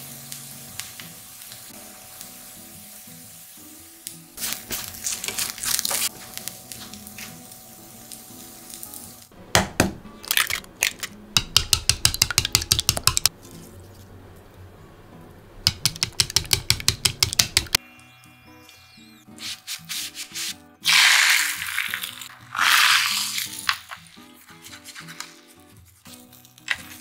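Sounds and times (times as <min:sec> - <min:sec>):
eggs beaten with chopsticks: 0:10.3 - 0:13.4, 0:15.6 - 0:17.8.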